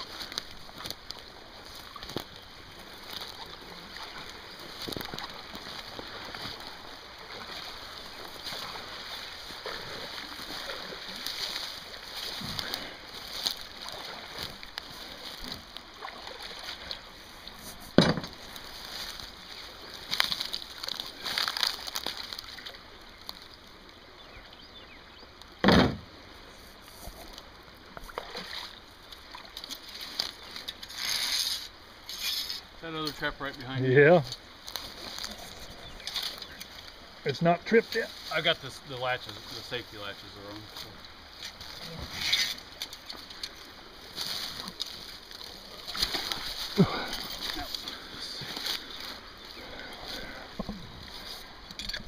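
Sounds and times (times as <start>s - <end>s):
wading through shallow water: 0.0s - 52.0s
loud thump: 18.0s - 18.3s, 25.6s - 26.0s.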